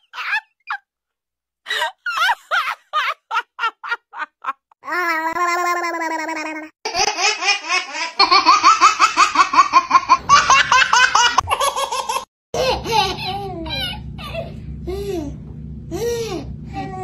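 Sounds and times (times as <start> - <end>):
babies laughing: 5.3 - 14.6
low steady hum: 10.2 - 17.0.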